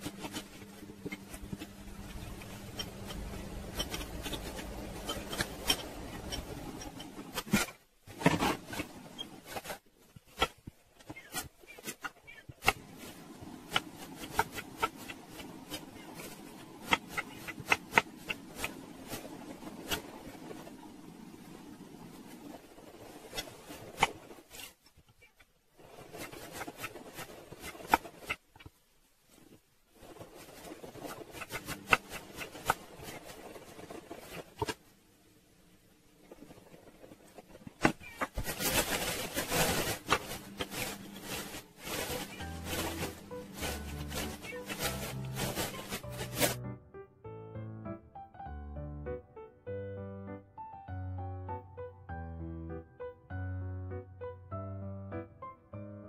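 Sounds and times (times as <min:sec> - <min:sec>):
plastic bag crinkling: 0:38.0 - 0:46.6
music: 0:40.4 - 0:56.0.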